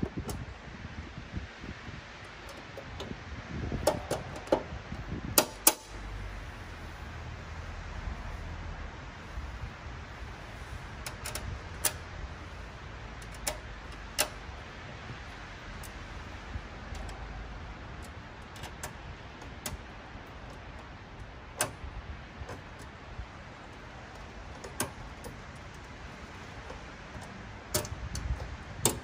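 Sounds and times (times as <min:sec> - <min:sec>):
steady low rumble: 0:00.0 - 0:29.0
metallic clicks of bolts: 0:05.4 - 0:06.1, 0:11.0 - 0:12.0, 0:13.1 - 0:14.6, 0:23.8 - 0:29.0.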